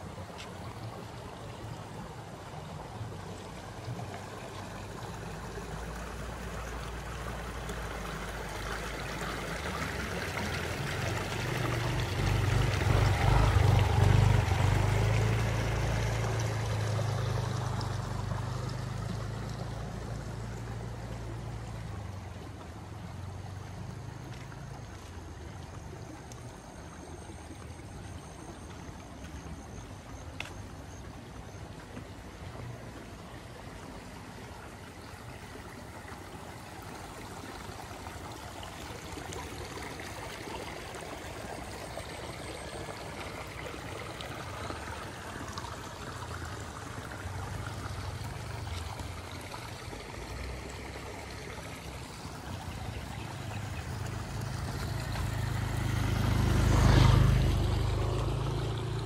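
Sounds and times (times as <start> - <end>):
water trickling and gurgling: 0.0 - 59.0
motor scooter approaching: 3.0 - 26.2, 38.9 - 59.0.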